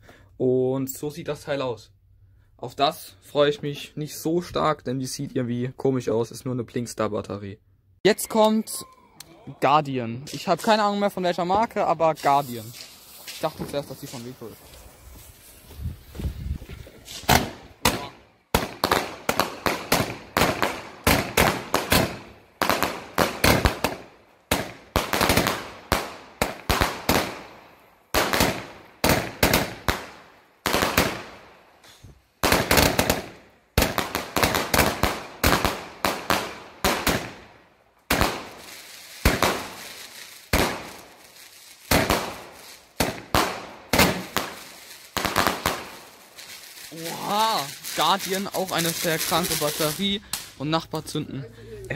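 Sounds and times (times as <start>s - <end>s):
firework bangs with crackling: 11.7s - 31.5s, 32.4s - 50.6s.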